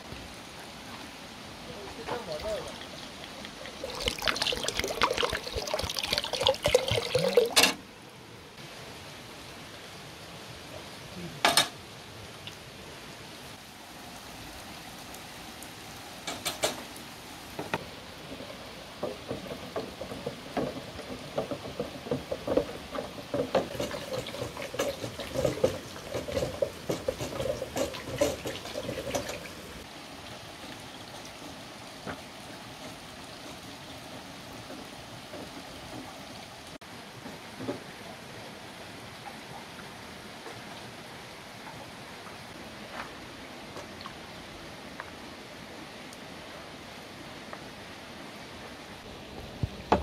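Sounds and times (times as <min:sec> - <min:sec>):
water pouring into a bucket: 0:02.2 - 0:07.7, 0:19.7 - 0:31.5.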